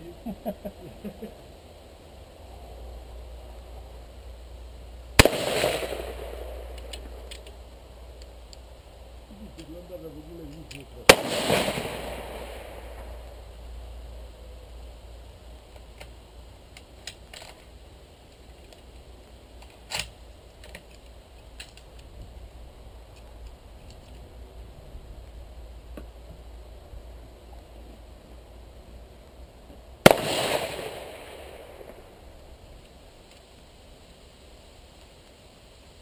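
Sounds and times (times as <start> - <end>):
rifle shot echoing: 5.2 - 7.3, 11.1 - 13.3, 30.0 - 32.2
faint sharp crack: 5.2 - 7.6, 30.0 - 32.2.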